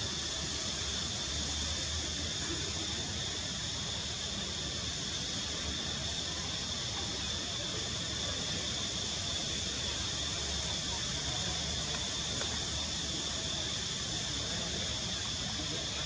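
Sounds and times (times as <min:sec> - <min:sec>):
faint distant voices: 0:00.0 - 0:16.0
high-pitched hiss: 0:00.0 - 0:16.0.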